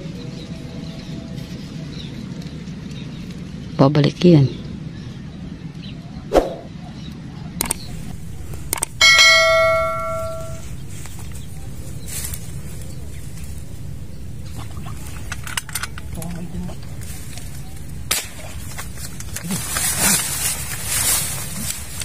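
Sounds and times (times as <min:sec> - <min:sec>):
metallic ringing ping: 0:07.8 - 0:14.3
airgun shot: 0:18.1 - 0:18.6.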